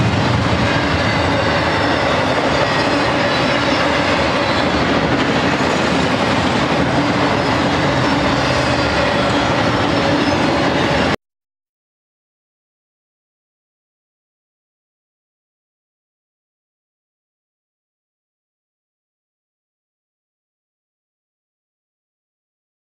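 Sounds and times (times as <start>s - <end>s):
train wheels running over rails: 0.0s - 11.2s.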